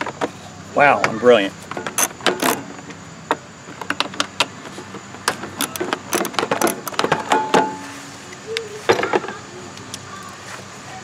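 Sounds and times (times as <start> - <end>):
ratchet wrench clicking: 1.9 - 2.7, 5.3 - 7.4.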